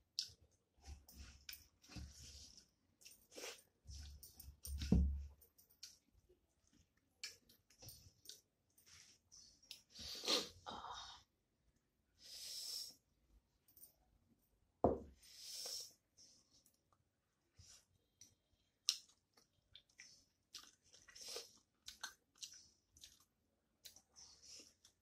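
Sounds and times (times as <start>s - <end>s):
chewing and mouth smacks: 18.2s - 24.1s.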